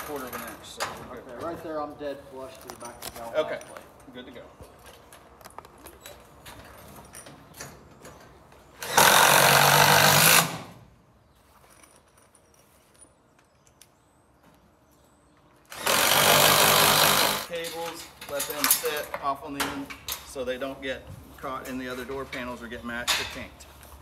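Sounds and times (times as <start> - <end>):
cordless power driver running: 15.7 - 17.5.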